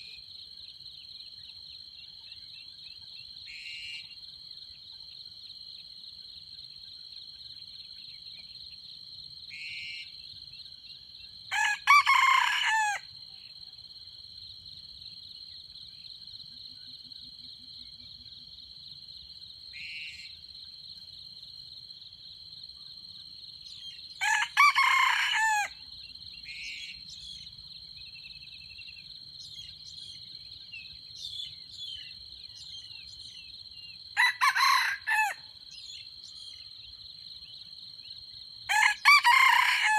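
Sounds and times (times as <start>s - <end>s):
roosters crowing: 11.5s - 13.0s, 24.2s - 25.8s, 34.2s - 35.5s, 38.7s - 39.9s.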